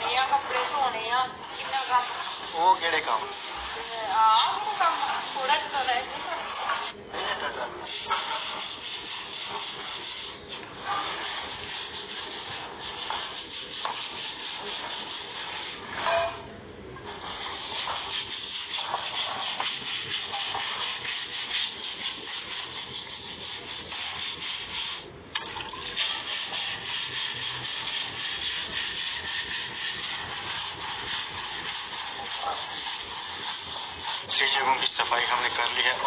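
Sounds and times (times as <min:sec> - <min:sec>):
water splashing on concrete floor: 0:23.9 - 0:33.7.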